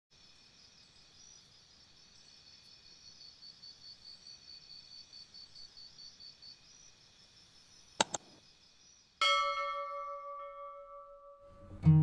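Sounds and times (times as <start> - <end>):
quick clicks: 8.0 - 8.4
bright bell ding: 9.2 - 11.6.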